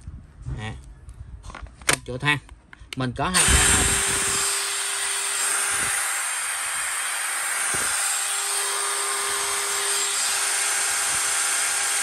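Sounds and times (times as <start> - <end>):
cordless drill whirring: 3.4 - 12.0.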